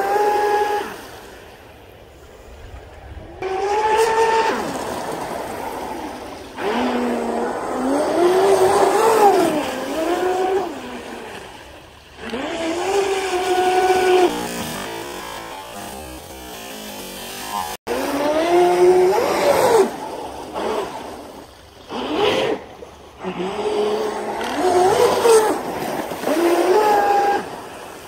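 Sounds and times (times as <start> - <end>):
electric motor whining: 3.4 - 21.3, 23.2 - 27.8.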